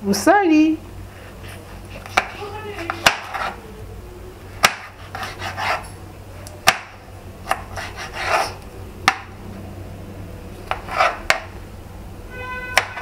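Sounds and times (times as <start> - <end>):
scraping strokes: 1.2 - 3.6, 4.8 - 6.0, 7.6 - 8.6, 10.6 - 11.4.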